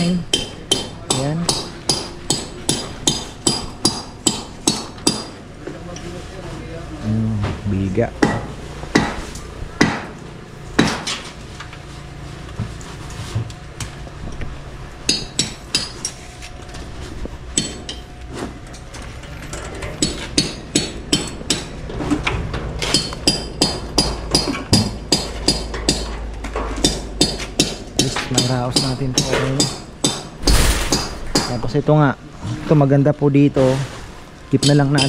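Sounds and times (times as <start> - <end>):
hammer blows ringing: 0.0 - 5.4, 8.2 - 10.2, 22.8 - 26.1, 26.8 - 31.8.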